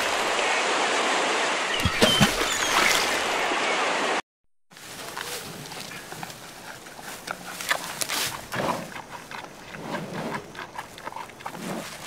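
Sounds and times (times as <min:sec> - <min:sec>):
leaves rustling: 0:00.0 - 0:12.0
panda chewing bamboo: 0:05.0 - 0:12.0.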